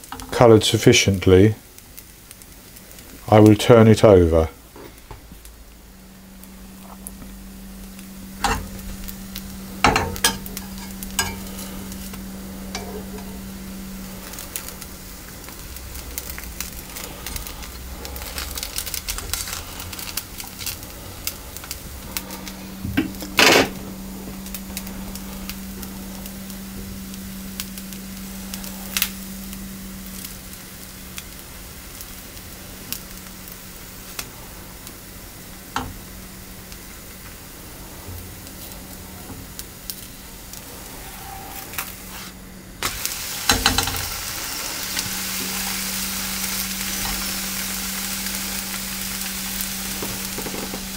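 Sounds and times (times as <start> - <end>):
batter sizzling in frying pan: 0.0 - 50.9
low steady hum: 0.0 - 50.9
spatula scraping and tapping pan: 9.8 - 13.4.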